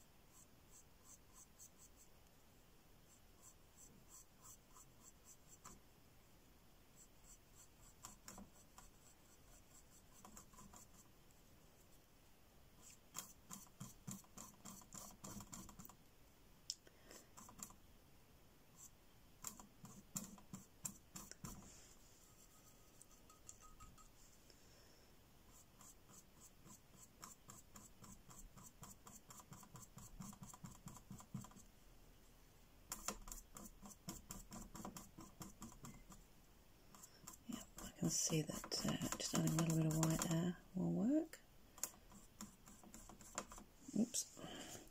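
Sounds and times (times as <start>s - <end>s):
paintbrush scratching on board: 0.3s - 2.1s, 3.1s - 5.8s, 7.0s - 11.1s, 12.8s - 16.0s, 17.2s - 17.8s, 18.8s - 24.2s, 25.5s - 31.7s, 32.9s - 36.3s, 36.9s - 40.6s, 41.8s - 44.3s.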